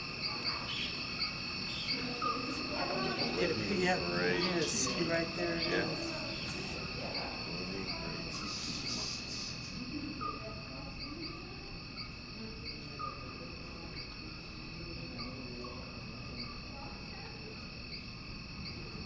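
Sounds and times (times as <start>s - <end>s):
crickets chirping: 0.0s - 19.0s.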